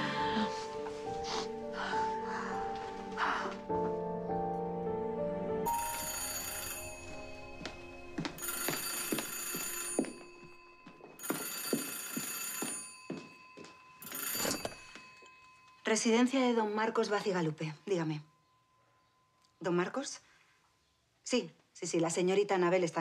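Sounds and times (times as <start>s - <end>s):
music: 0.0s - 11.1s
telephone bell ringing: 5.7s - 7.8s, 8.4s - 17.2s.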